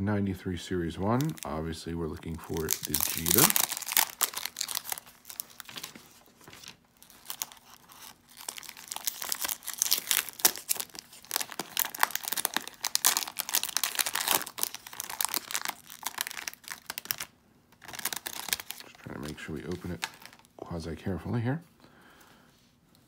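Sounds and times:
foil wrapper tearing and crinkling: 1.0 - 1.5, 2.3 - 20.5.

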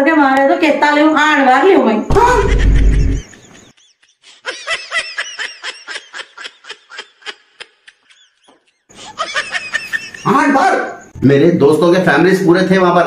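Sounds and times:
high-pitched snickering laughter: 2.2 - 10.4.

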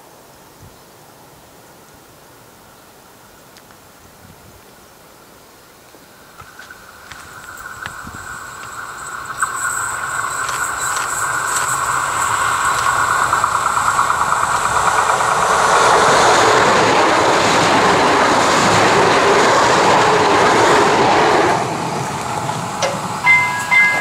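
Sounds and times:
train passing at speed: 6.0 - 24.0
high hum from rails: 6.1 - 24.0
wheels clickety-clack: 6.3 - 24.0.

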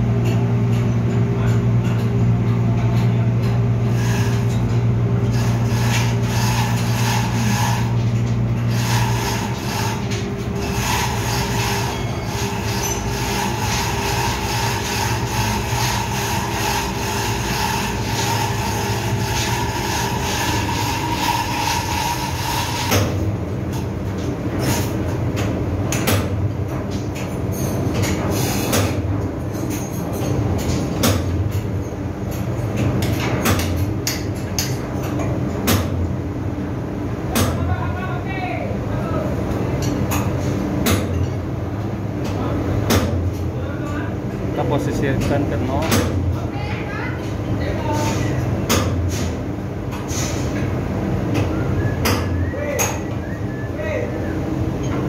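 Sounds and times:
engine room machinery drone: 0.0 - 55.0
high-pitched machine whine: 5.3 - 23.0.

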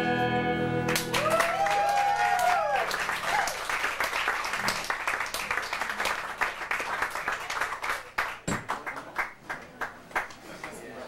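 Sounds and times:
audience clapping: 0.9 - 11.0.

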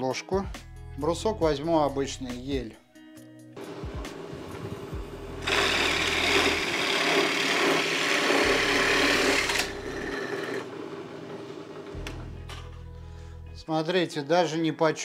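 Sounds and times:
drill press motor hum: 3.6 - 12.2
drill bit cutting wood: 5.4 - 10.7.

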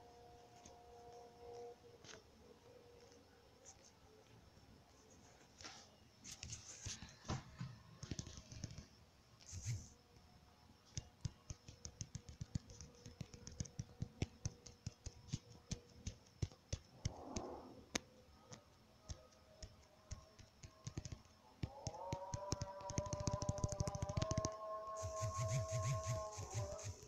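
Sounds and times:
fingertips tapping touchscreen: 9.5 - 9.9, 10.9 - 18.0, 19.1 - 27.0.

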